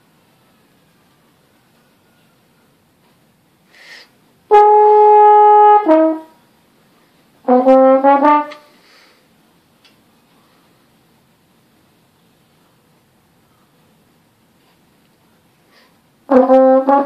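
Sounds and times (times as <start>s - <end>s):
breath: 3.7s - 4.2s, 8.7s - 9.3s, 10.3s - 10.9s, 13.4s - 13.9s, 15.6s - 16.0s
french horn playing: 4.5s - 6.4s, 7.4s - 8.7s, 16.3s - 17.0s.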